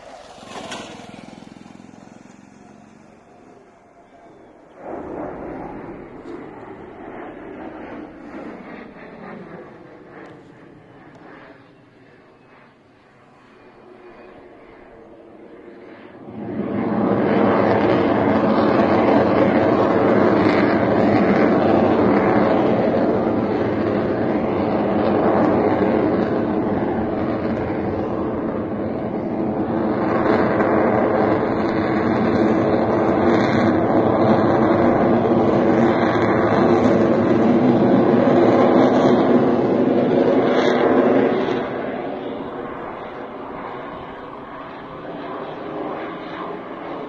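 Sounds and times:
jet engine roar: 0.0s - 47.0s.

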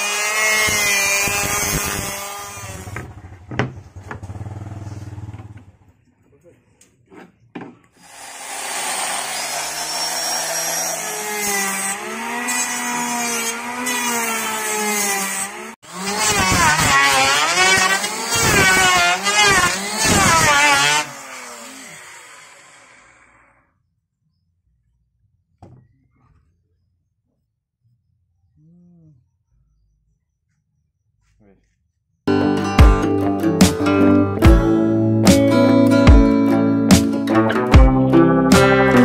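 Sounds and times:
motor revving: 0.0s - 3.3s, 8.0s - 14.9s, 15.8s - 23.6s.

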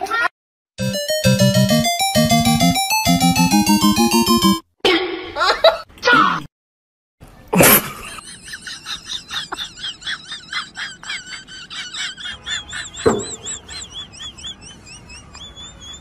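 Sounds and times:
high chirping squeaks: 12.6s - 16.0s.

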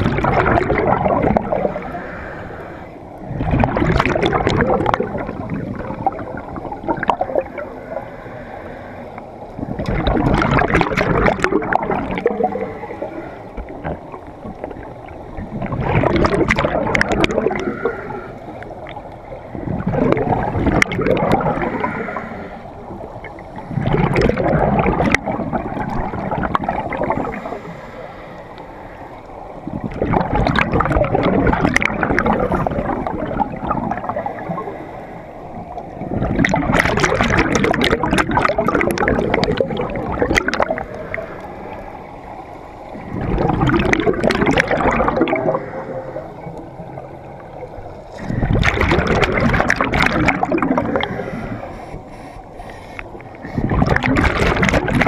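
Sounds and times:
diver exhaling bubbles underwater: 0.0s - 2.2s, 3.3s - 7.7s, 9.6s - 18.3s, 19.6s - 27.6s, 29.6s - 34.7s, 36.0s - 41.8s, 42.9s - 47.4s, 48.1s - 51.7s, 53.4s - 55.0s.

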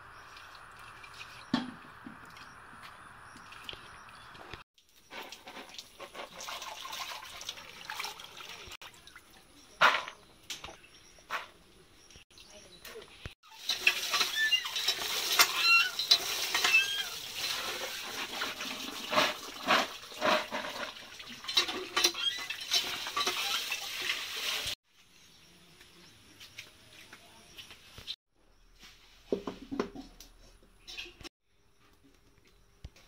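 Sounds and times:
water gushing from pump spout: 0.0s - 2.5s, 4.9s - 9.4s, 13.5s - 24.8s.

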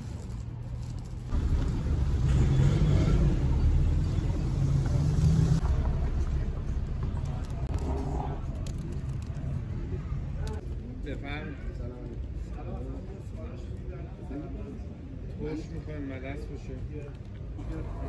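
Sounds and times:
vehicle engine passing by: 0.8s - 8.9s.

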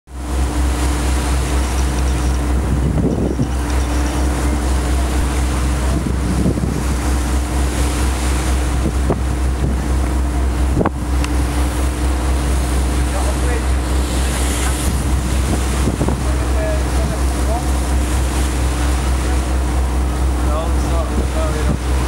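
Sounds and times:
boat engine droning: 0.1s - 22.0s
water washing past: 0.1s - 22.0s
wind on microphone: 1.5s - 12.2s, 13.8s - 20.2s.

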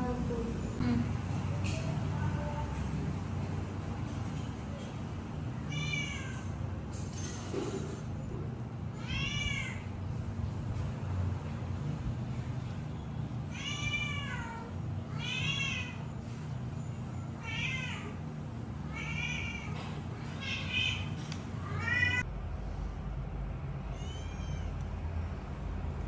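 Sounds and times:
low steady hum: 0.0s - 26.0s
kittens meowing: 5.6s - 6.6s, 9.0s - 9.9s, 13.5s - 16.1s, 17.3s - 18.2s, 18.8s - 22.2s, 23.9s - 24.8s.

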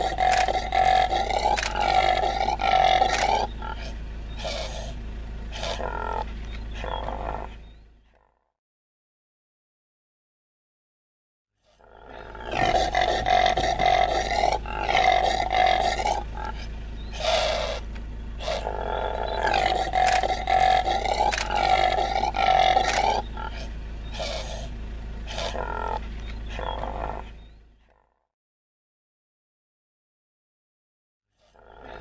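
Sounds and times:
impala hoarse calls: 0.0s - 8.4s, 11.6s - 28.1s, 31.4s - 32.0s.

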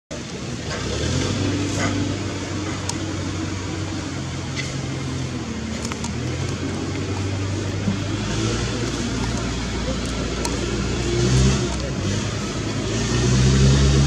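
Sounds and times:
faint clicks: 5.7s - 7.2s.

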